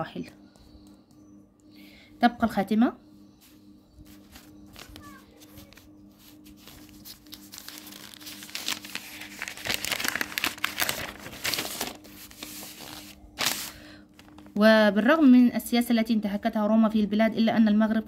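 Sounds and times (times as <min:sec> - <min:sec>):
notebook pages rustling: 0:03.4 - 0:14.6.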